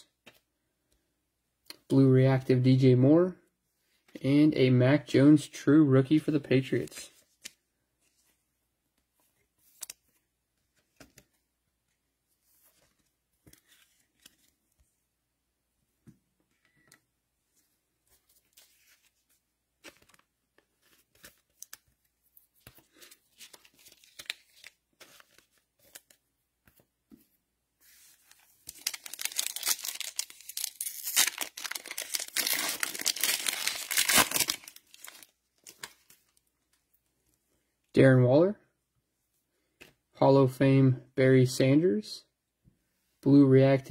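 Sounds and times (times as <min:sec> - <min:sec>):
foil wrapper tearing and crinkling: 0:28.7 - 0:35.8.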